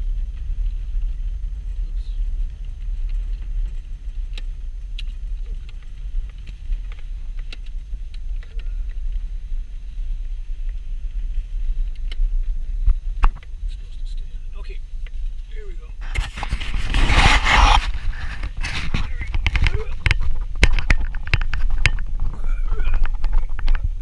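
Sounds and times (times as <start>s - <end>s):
car engine and tyres rumbling: 0.0s - 24.0s
light clicks and ticks: 11.8s - 12.3s.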